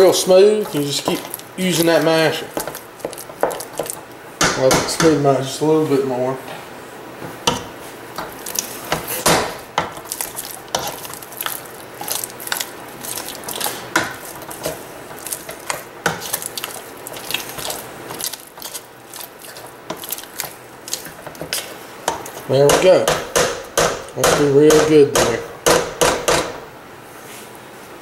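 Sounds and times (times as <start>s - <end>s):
potato masher knocking in pot: 0.4s - 5.2s, 13.3s - 18.8s, 19.5s - 26.6s.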